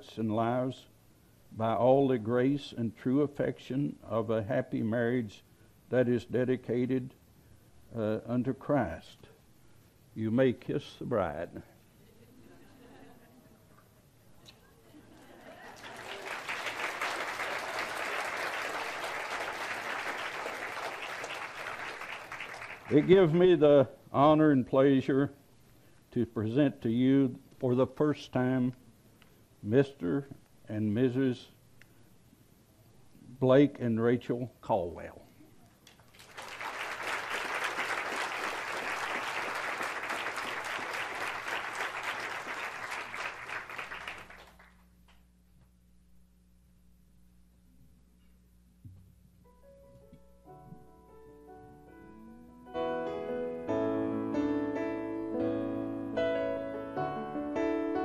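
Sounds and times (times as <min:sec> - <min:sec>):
audience applauding: 0:15.4 - 0:23.3, 0:36.1 - 0:44.8.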